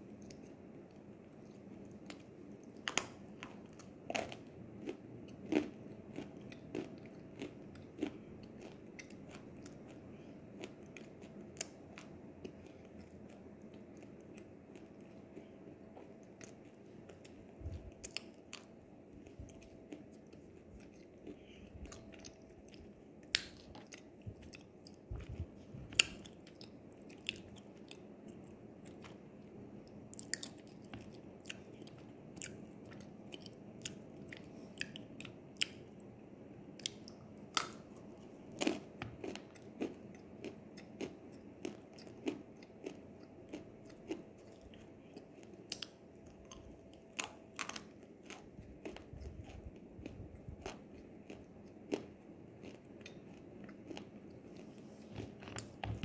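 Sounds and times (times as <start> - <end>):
chewing crunchy clay: 36.8 - 54.7.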